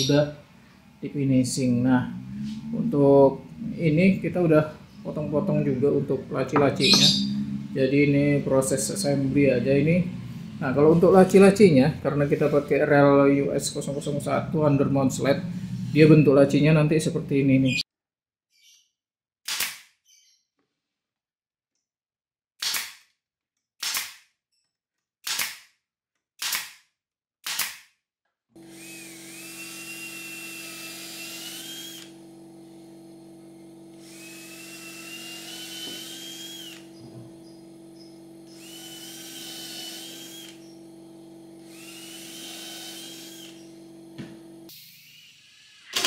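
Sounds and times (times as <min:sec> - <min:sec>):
steady hum: 0:00.2 - 0:17.7, 0:28.6 - 0:44.7
pneumatic nailer firing: 0:19.5 - 0:19.9, 0:22.6 - 0:23.1, 0:23.8 - 0:24.2, 0:25.2 - 0:25.7, 0:26.4 - 0:26.8, 0:27.4 - 0:27.9, 0:41.6 - 0:46.0
cordless drill drilling into wood: 0:28.6 - 0:46.0.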